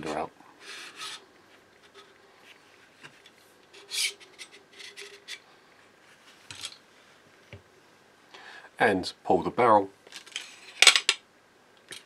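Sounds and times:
metal scraping on metal: 0.0 - 1.2, 3.7 - 5.4.

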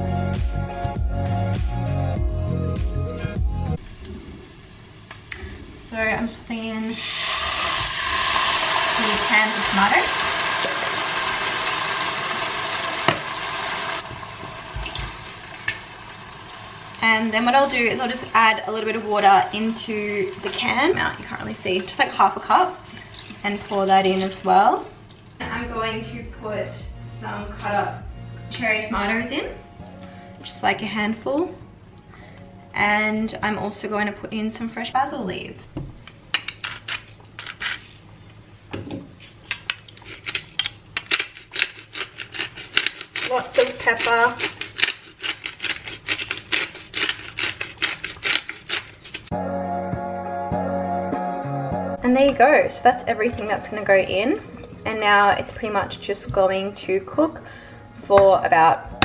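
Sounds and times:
pot sizzling: 3.8 - 25.4, 41.2 - 49.3
pepper grinder clicking: 39.5 - 49.3.

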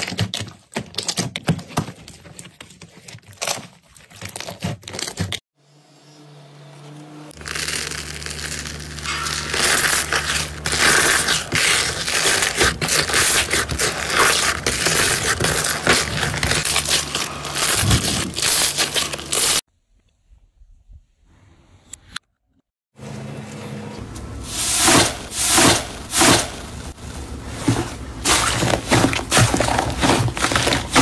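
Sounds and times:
slime crackling and popping: 7.4 - 19.6.

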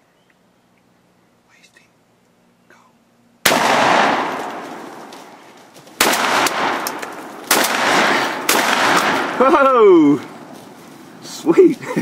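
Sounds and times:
shotgun blasts echoing: 3.4 - 5.2, 6.0 - 9.8.

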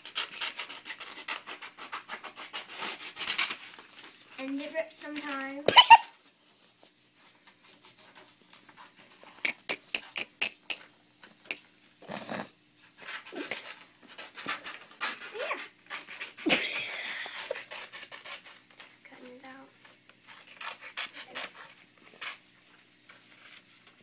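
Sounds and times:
scissors snipping paper: 17.4 - 18.6, 20.3 - 22.4.

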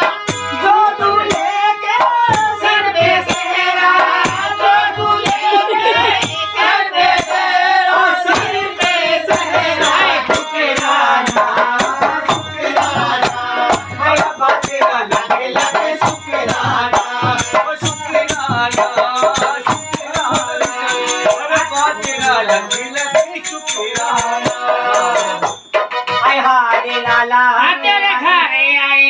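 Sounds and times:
person singing: 0.0 - 29.0
keyboard melody: 19.9 - 27.6.

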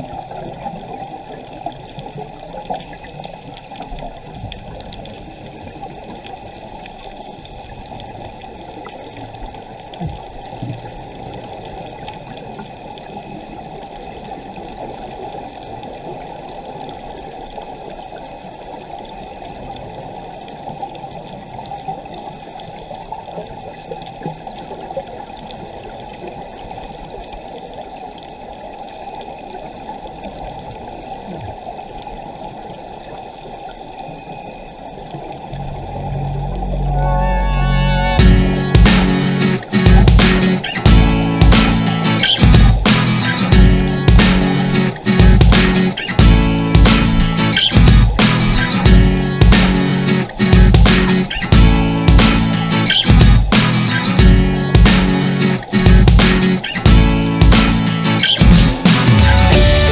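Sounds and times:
muffled underwater bubbling: 29.4 - 53.6.

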